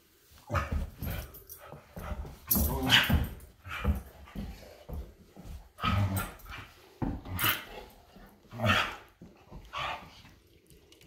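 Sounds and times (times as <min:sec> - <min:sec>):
dogs barking in play: 0:05.8 - 0:10.1.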